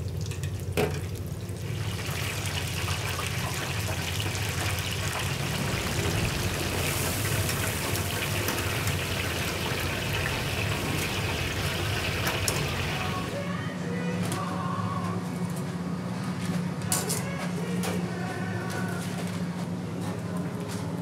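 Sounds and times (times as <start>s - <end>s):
low steady hum: 0.0s - 19.6s
shrimp sizzling in hot oil: 1.6s - 13.4s.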